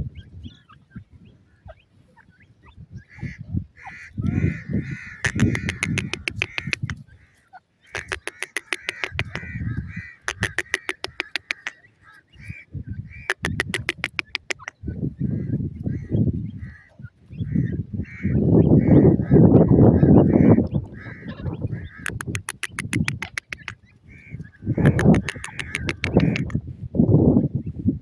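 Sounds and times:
bird chattering call: 3.1s - 7.1s, 7.8s - 14.9s, 17.4s - 26.6s
bird rapid sharp clicking: 5.2s - 7.0s, 7.9s - 9.5s, 10.2s - 11.9s, 13.2s - 14.8s, 21.7s - 26.6s.

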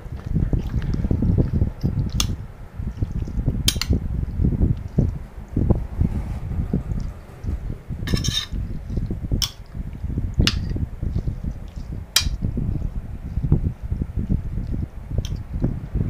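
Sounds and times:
spoon scraping plate: 6.0s - 9.6s.

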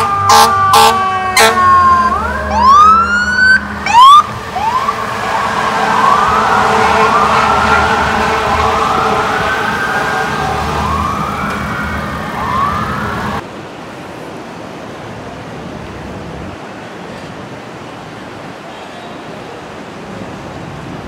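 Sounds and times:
fire truck sirens wailing: 0.0s - 13.4s
street traffic: 0.0s - 21.0s
wind: 0.0s - 21.0s
choppy river water: 13.2s - 21.0s.

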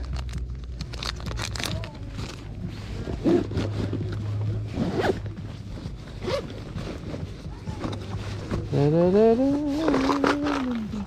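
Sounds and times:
plastic packet rustling and clicking: 0.0s - 2.4s
faint voices: 0.8s - 11.0s.

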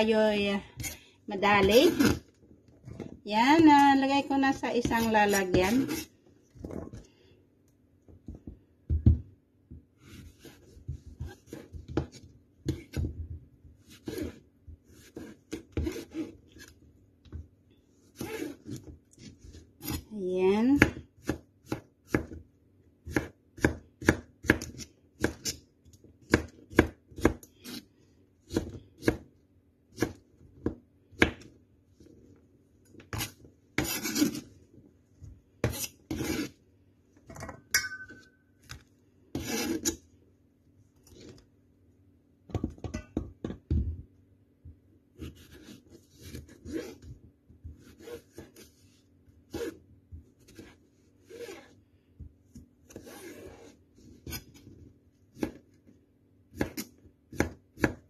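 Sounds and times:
knife chopping on plastic board: 20.8s - 22.4s, 23.0s - 25.6s, 26.2s - 27.5s, 56.5s - 58.0s
knife scraping on board: 33.1s - 34.5s, 35.6s - 36.6s, 39.3s - 40.0s.

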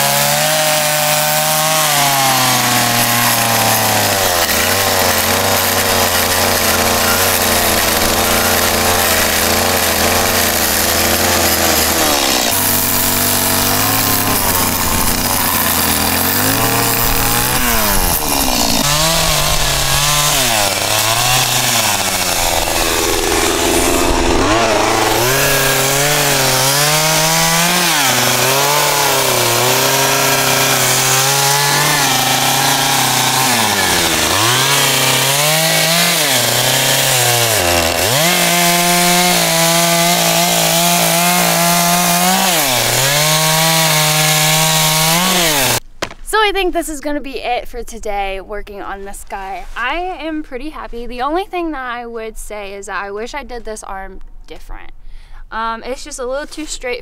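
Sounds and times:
chainsaw carving wood: 0.0s - 46.2s.

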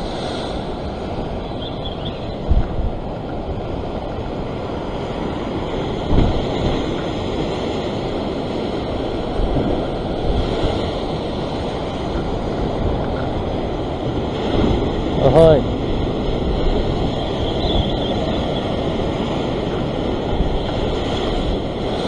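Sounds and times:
ocean surf breaking on rocks: 0.0s - 22.0s
wind buffeting microphone: 0.0s - 22.0s.

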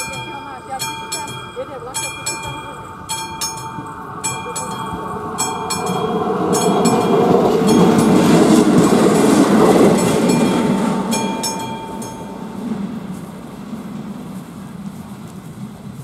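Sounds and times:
crossing warning bell ringing: 0.0s - 15.1s
diesel railcar passing: 0.0s - 16.0s.

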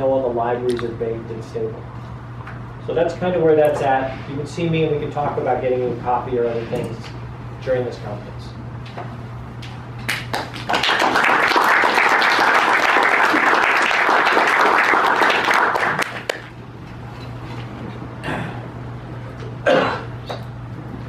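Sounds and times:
audience applauding: 10.1s - 16.5s.

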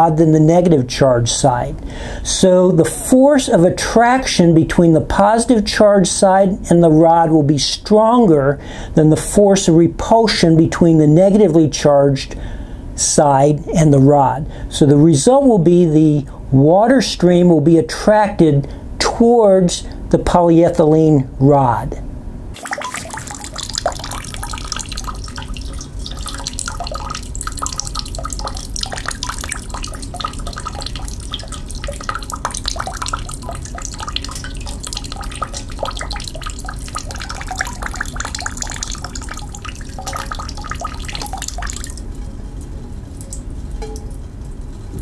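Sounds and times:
water stream splashing: 22.6s - 42.1s.

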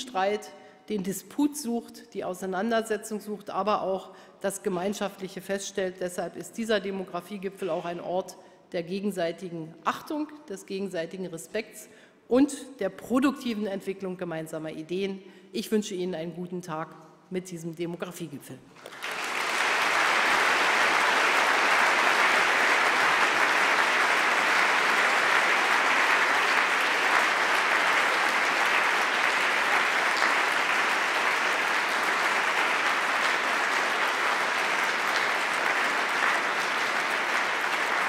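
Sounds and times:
audience applauding: 18.8s - 38.0s.

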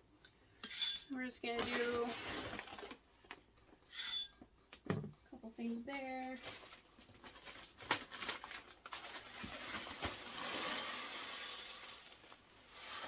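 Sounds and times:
granular rustling of potting mix: 1.4s - 3.4s, 5.7s - 13.0s.

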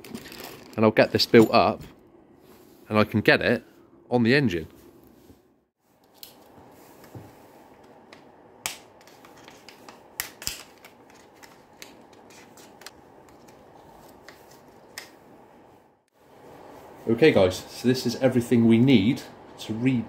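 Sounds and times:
plastic packaging crinkling: 0.0s - 0.9s.

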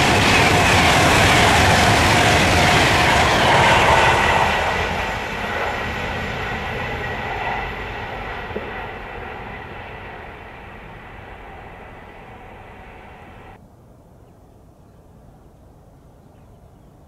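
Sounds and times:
passing train: 0.0s - 13.6s.

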